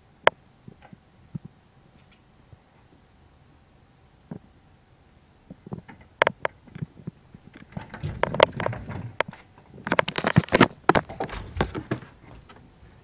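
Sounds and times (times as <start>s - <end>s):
knocks clicks and scrapes: 5.6s - 12.6s.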